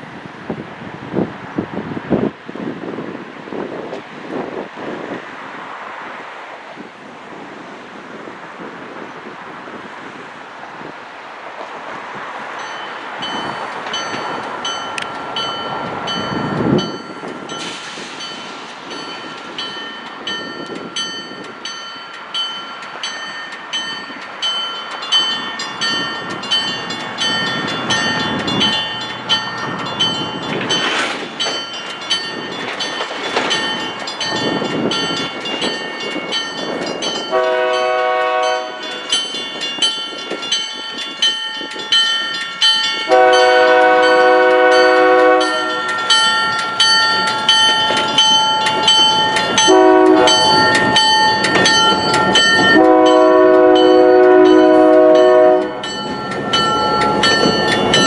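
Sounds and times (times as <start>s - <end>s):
train engine and wheels rumbling: 0.0s - 58.0s
locomotive bell ringing: 12.6s - 58.0s
train horn blast: 37.3s - 39.0s, 43.1s - 46.0s, 49.6s - 50.7s, 52.6s - 55.9s.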